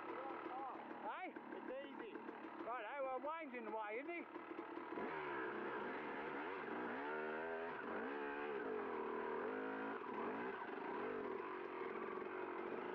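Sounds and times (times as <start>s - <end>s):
dirt bike engine revving: 4.3s - 12.9s.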